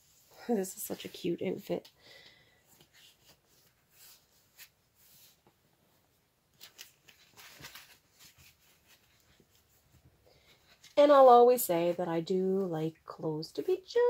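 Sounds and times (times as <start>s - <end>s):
clothing fabric rustling: 2.7s - 11.9s.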